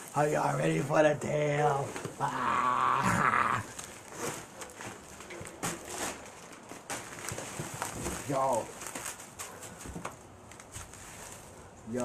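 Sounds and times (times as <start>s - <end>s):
plastic and cardboard crinkling: 3.6s - 12.0s.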